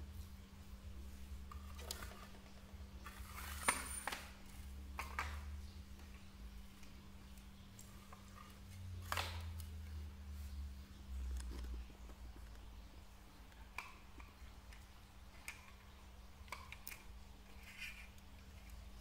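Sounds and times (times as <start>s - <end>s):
faint low hum: 0.0s - 19.0s
plastic parts clicking and knocking: 1.5s - 6.2s, 13.4s - 19.0s.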